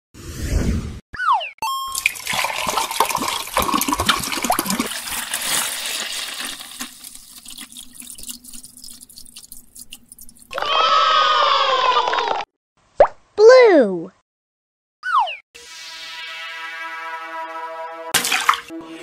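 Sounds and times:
liquid pouring into plastic cup: 2.0s - 10.6s.

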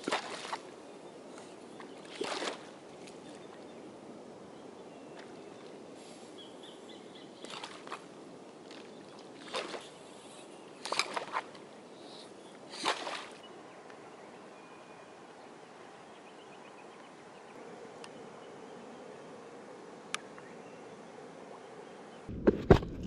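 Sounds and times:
shallow water splashing: 0.0s - 0.8s, 1.8s - 3.6s, 7.4s - 10.2s, 10.8s - 11.8s, 12.6s - 13.5s.

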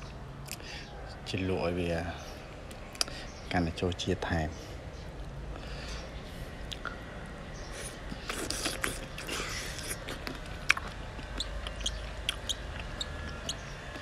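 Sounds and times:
man chewing with wet smacking: 6.6s - 6.9s, 7.7s - 14.0s
small mouth clicks: 6.7s - 7.0s.

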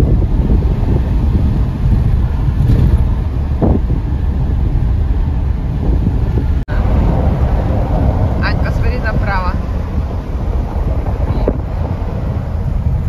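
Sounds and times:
car road rumble: 0.0s - 13.0s
wind buffeting microphone: 0.0s - 13.0s.

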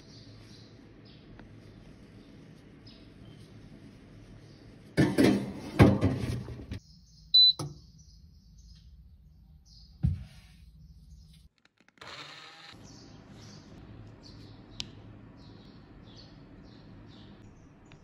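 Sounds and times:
short electronic beep: 7.4s - 7.6s.

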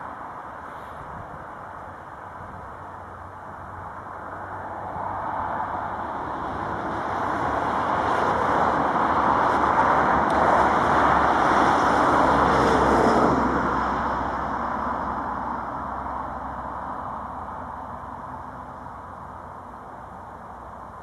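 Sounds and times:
jet engine roar at takeoff: 0.0s - 21.0s.

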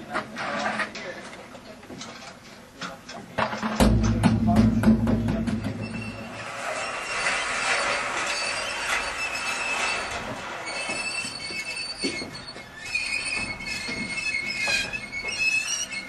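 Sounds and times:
metal knocks: 3.4s - 6.4s
high metallic squealing: 5.6s - 16.0s.

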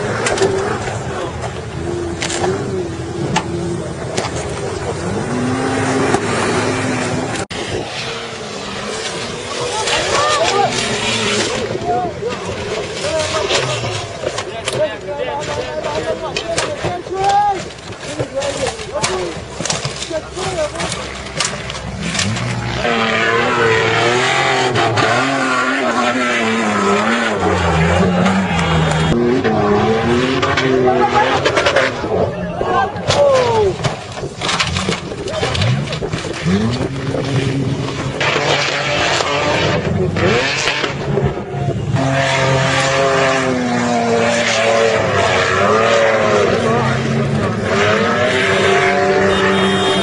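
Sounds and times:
suv engine revving hard: 1.7s - 11.8s, 21.9s - 32.3s, 34.5s - 50.0s.

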